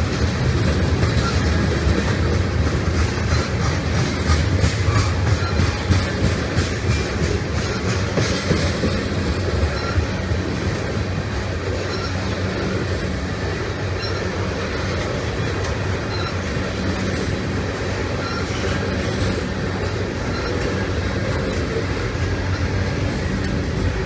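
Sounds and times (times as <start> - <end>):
train wheels rumbling on rails: 0.0 - 24.0
faint wheel squeaks: 9.6 - 10.2, 11.8 - 12.8, 18.0 - 23.1.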